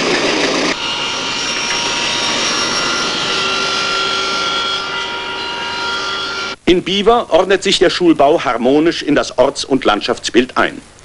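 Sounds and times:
machine tools whirring: 0:00.0 - 0:06.6
whining tones: 0:00.0 - 0:06.6.

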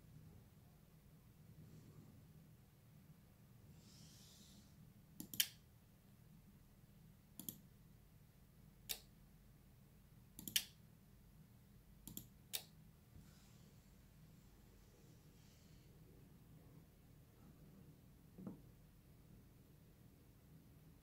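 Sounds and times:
computer mouse clicking: 0:05.2 - 0:05.6, 0:07.4 - 0:07.6, 0:10.4 - 0:10.8, 0:12.0 - 0:12.7.

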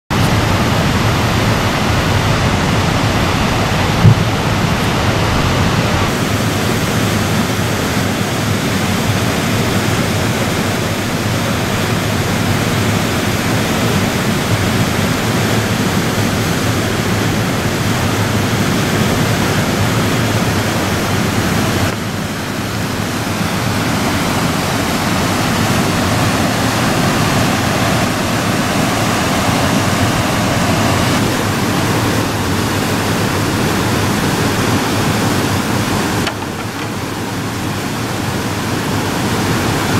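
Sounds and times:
whitewater rushing: 0:00.1 - 0:39.9
brief thump: 0:04.0 - 0:04.3.

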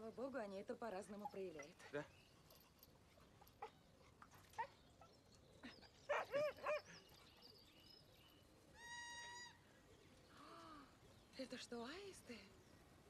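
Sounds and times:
dog barking: 0:06.1 - 0:06.9.

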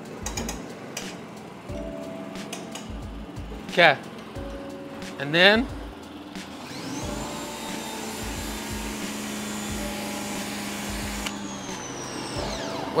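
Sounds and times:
pressure washer motor whine: 0:00.2 - 0:13.0.

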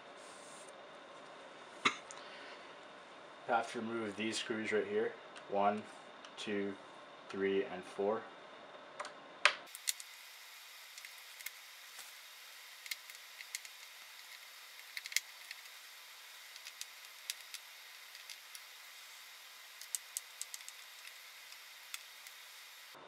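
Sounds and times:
screwdriver and screws clicking: 0:09.7 - 0:10.1, 0:10.9 - 0:22.7
steady hiss: 0:09.7 - 0:23.0.

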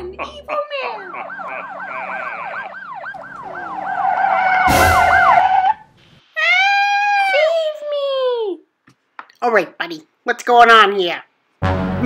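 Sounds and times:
police siren wail: 0:01.0 - 0:05.8
police siren yelp: 0:01.0 - 0:05.8.

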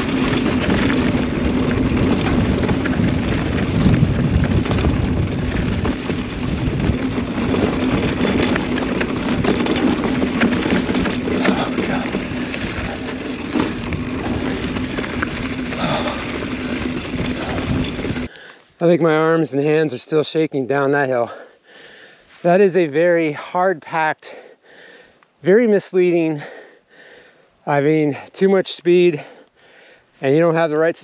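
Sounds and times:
wind rushing over microphone: 0:00.0 - 0:18.3
tyre noise: 0:00.0 - 0:18.4
bike rattling: 0:00.0 - 0:19.5.

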